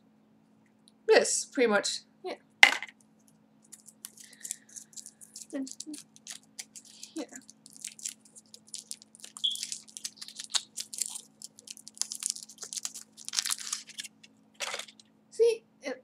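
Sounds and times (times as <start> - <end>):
foil wrapper crinkling: 3.7 - 15.0.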